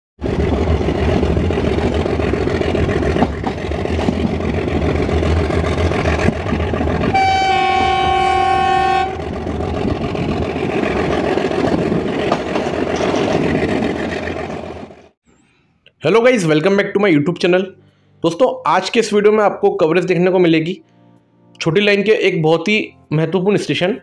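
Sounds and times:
train rumbling on track: 0:00.2 - 0:15.2
locomotive horn blast: 0:07.0 - 0:09.4.

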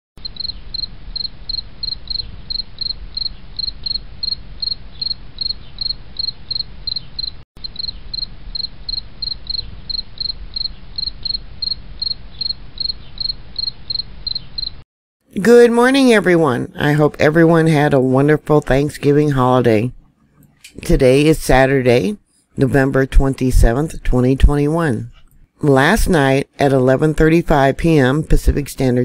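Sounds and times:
insect chirping: 0:00.2 - 0:14.8.

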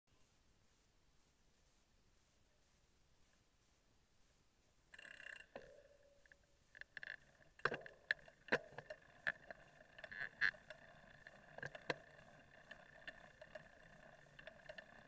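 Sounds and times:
faint steady hum: 0:00.1 - 0:15.0
bike knocking and rattling: 0:06.8 - 0:15.0.

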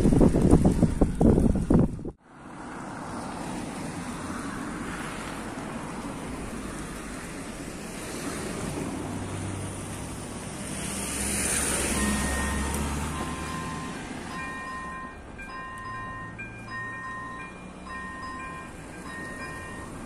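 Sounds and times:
wind noise on microphone: 0:00.0 - 0:02.2
car approaching: 0:00.0 - 0:20.0
road traffic: 0:00.0 - 0:20.0.

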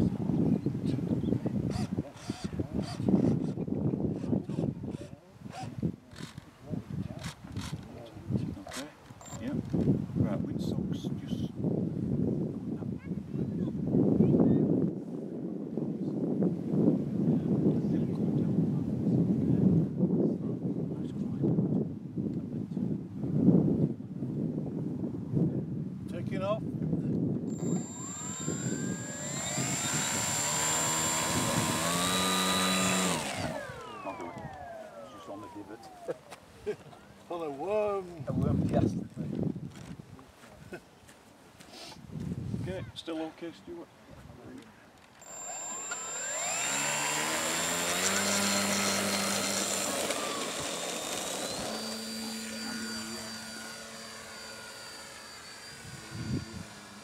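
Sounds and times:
model plane motor whining: 0:27.5 - 0:36.1, 0:45.2 - 0:57.0.

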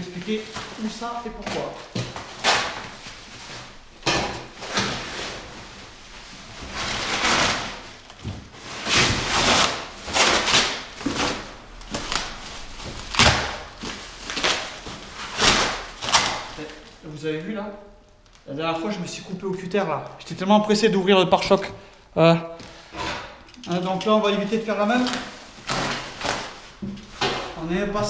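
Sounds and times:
bubble wrap crinkling: 0:00.0 - 0:04.0, 0:04.6 - 0:22.0, 0:23.7 - 0:27.9
cardboard packaging tearing: 0:06.7 - 0:17.0, 0:24.3 - 0:27.6.

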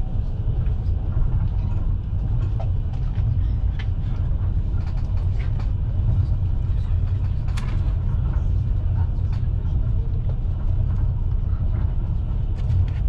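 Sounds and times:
train wheels rumbling on rails: 0:00.0 - 0:13.0
faint clicks and rattles: 0:00.6 - 0:13.0.

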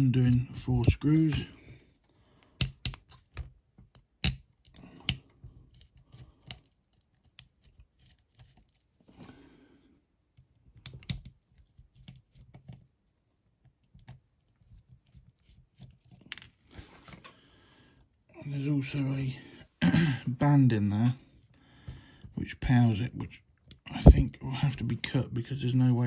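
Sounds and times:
screwdriver clicks and scrapes: 0:02.6 - 0:08.9.

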